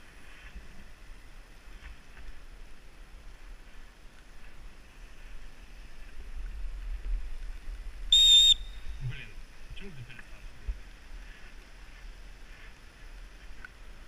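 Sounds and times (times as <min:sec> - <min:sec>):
wind rumble: 0:00.0 - 0:14.0
short whistle blast: 0:08.1 - 0:09.0.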